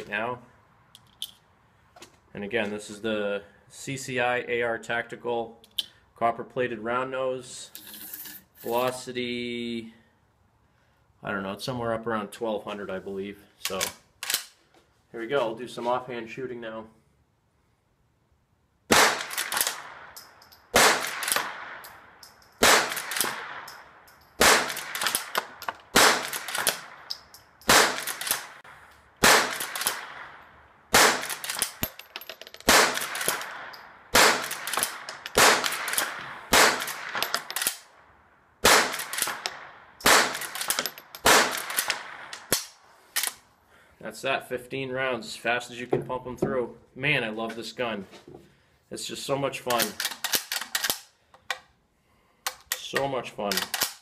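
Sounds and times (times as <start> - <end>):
rifle lever clacking: 13.7 - 14.5, 49.7 - 51.6, 52.5 - 54.0
rifle shots: 18.9 - 22.0, 22.6 - 23.7, 24.4 - 27.1, 27.7 - 28.6, 29.2 - 32.0, 32.6 - 37.9, 38.6 - 42.8.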